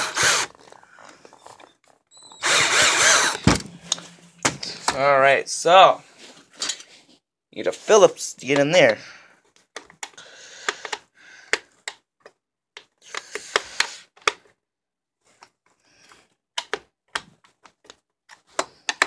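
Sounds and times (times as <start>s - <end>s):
scraping: 2.4s - 5.4s
sharp clicks and taps of plastic: 9.6s - 13.6s, 16.5s - 19.0s.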